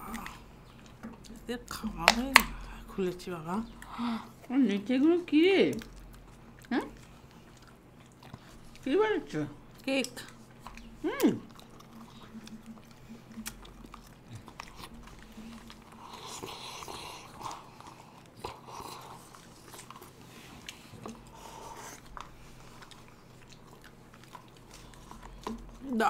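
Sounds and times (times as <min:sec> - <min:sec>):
chewing and mouth smacks: 0:00.0 - 0:26.0.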